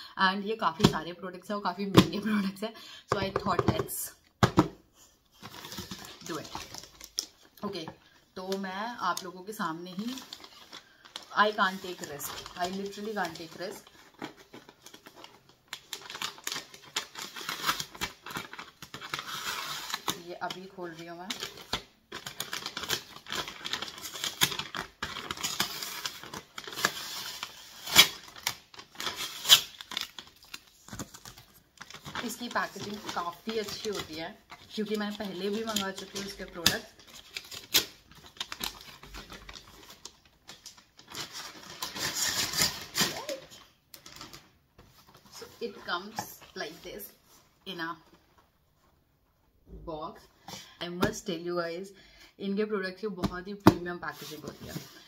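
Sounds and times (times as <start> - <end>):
paper wrapping crackling: 5.4 - 7.6, 9.9 - 45.7.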